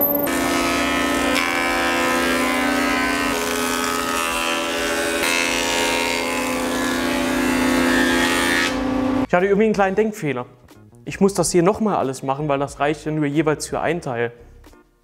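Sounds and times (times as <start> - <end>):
thickness planer planing board: 0.3 - 9.3.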